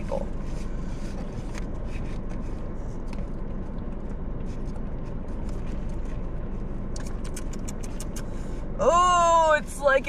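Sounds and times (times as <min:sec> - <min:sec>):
car engine idling: 0:00.0 - 0:10.0.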